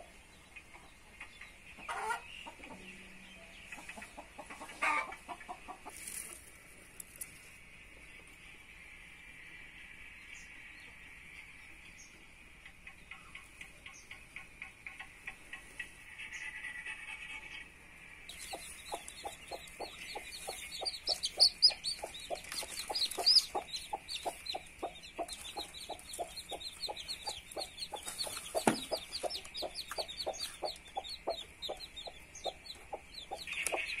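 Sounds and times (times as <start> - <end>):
chicks peeping: 0.4 - 6.2, 18.3 - 34.0
hen clucking softly: 0.7 - 2.8, 3.6 - 6.0, 18.3 - 34.0.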